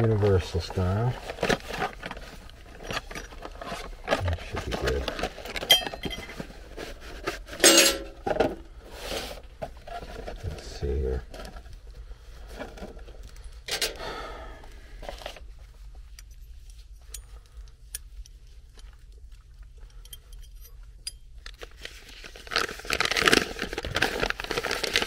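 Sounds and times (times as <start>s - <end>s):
paper crinkling and rustling: 0.0s - 7.6s, 21.5s - 25.0s.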